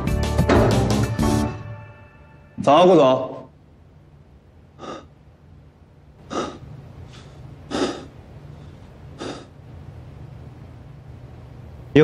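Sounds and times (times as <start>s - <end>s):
person exhaling breathy puffs: 4.8s - 5.1s, 6.3s - 8.1s, 9.2s - 9.5s.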